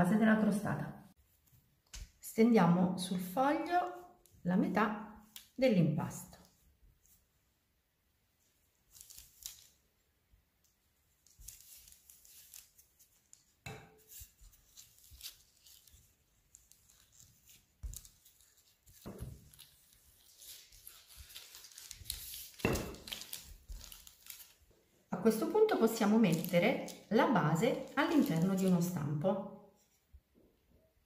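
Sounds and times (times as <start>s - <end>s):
sheet rustling and crinkling: 11.1s - 24.9s, 25.8s - 29.0s.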